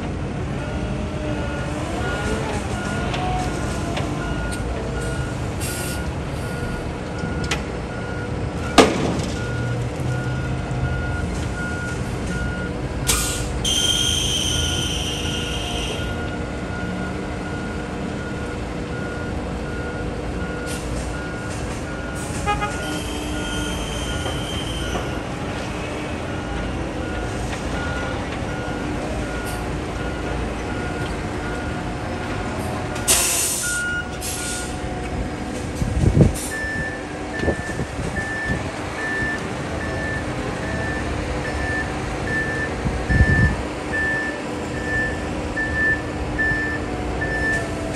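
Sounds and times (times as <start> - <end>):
diesel engine running: 0.0 - 47.9
air brake squeal: 5.6 - 6.8, 13.1 - 16.2, 22.2 - 25.2, 33.1 - 34.8
backup alarm beeping: 33.0 - 34.8, 36.4 - 47.7.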